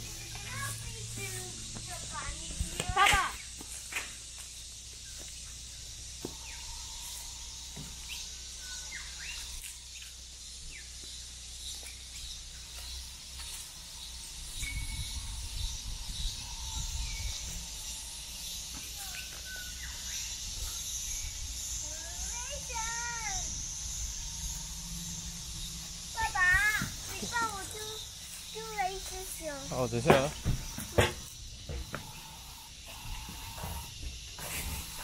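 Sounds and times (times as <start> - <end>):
steady high hiss: 0.0 - 35.0
bird chirps and calls: 5.1 - 13.2.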